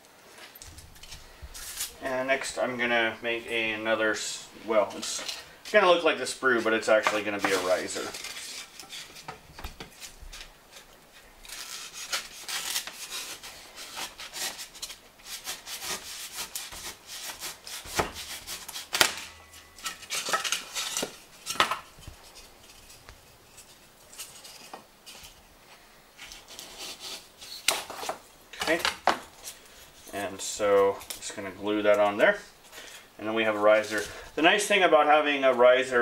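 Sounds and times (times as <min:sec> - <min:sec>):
knife sawing through foam: 0:11.5 - 0:19.0.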